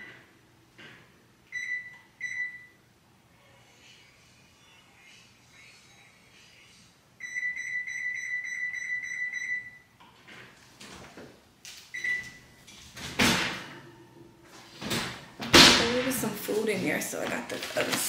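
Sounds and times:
oven control panel beeping: 1.5s - 2.8s, 11.9s - 12.5s.

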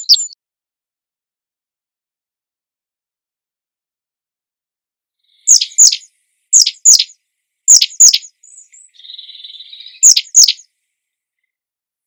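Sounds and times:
bird singing sharp falling notes: 0.0s - 0.4s, 5.5s - 10.7s
faint buzzy bird trill: 0.0s - 0.4s, 5.2s - 11.6s.

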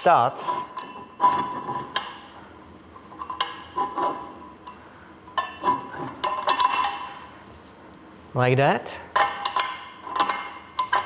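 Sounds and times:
metal studs clinking on flange: 0.6s - 2.3s, 3.0s - 7.3s, 9.2s - 11.0s.

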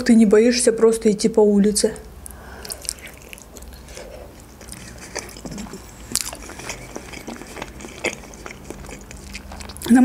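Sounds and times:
biting and chewing: 2.6s - 10.0s.

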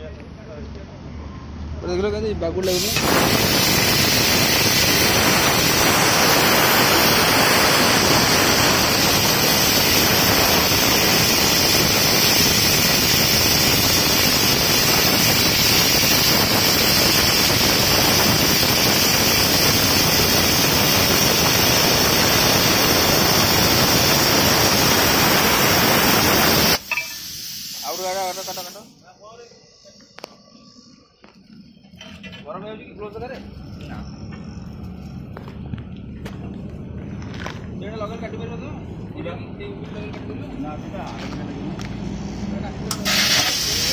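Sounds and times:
plasma cutter hissing: 2.6s - 32.0s, 42.2s - 43.9s.

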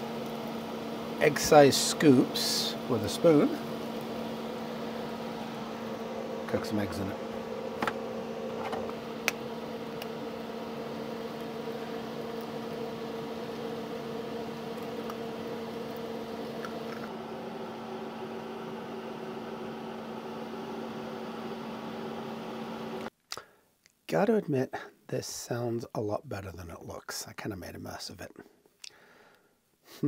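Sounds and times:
stove hum: 0.0s - 23.1s.

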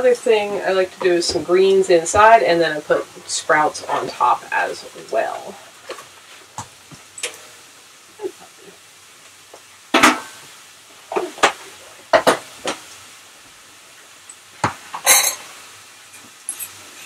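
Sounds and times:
dishes and pans clinking: 9.9s - 10.4s, 11.1s - 12.8s, 14.6s - 15.5s.

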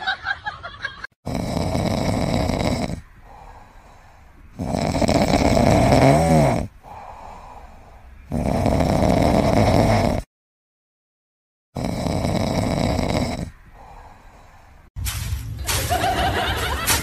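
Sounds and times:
loud snoring: 1.2s - 3.5s, 4.5s - 7.4s, 8.2s - 10.3s, 11.7s - 14.1s
quiet breaths: 1.4s - 9.1s, 12.3s - 15.0s.

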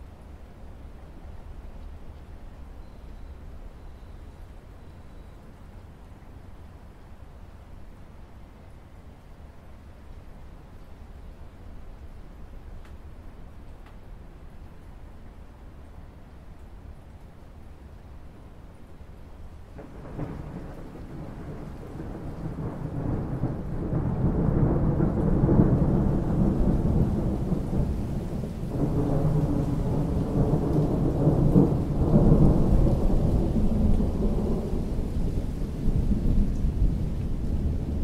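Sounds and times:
steady rain: 0.0s - 38.0s
thunder rolling: 19.8s - 38.0s.

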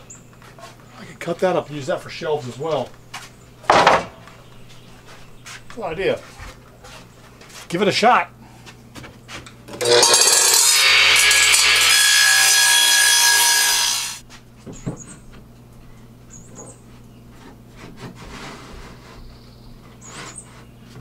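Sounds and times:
radial arm saw cutting wood: 9.8s - 14.2s.

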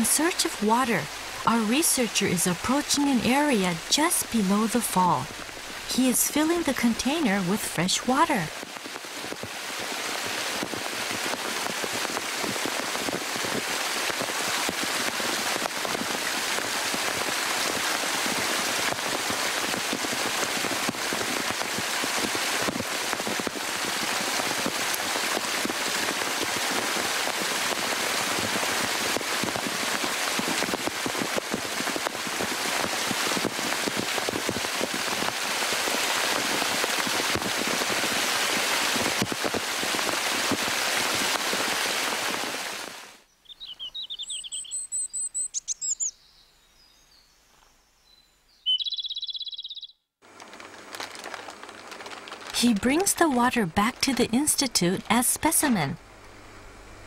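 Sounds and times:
waterfall splashing over rocks: 8.1s - 43.2s.

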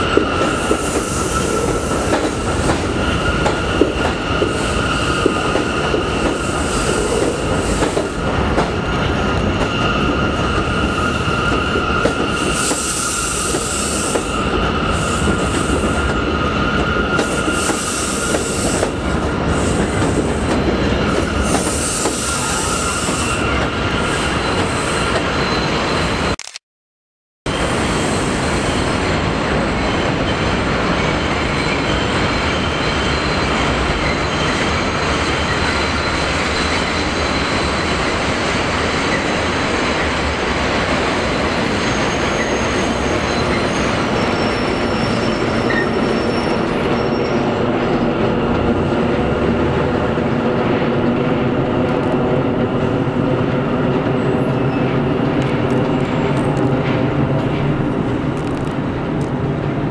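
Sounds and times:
train wheels rumbling on rails: 0.0s - 26.3s, 27.5s - 59.9s
high-pitched wheel squeal: 41.5s - 47.6s.

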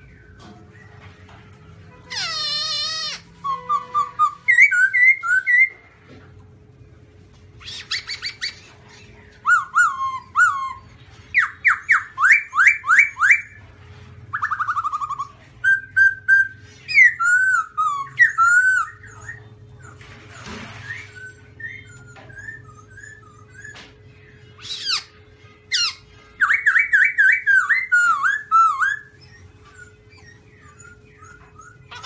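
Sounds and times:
bird singing whistled phrases: 2.1s - 5.8s, 7.6s - 8.7s, 9.4s - 13.6s, 14.3s - 19.5s, 20.8s - 25.1s, 25.7s - 32.0s.

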